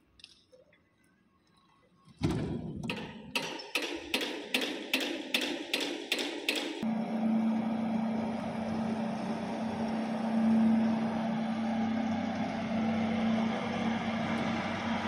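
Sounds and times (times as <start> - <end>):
carpet extractor motor hum: 6.8 - 15.0.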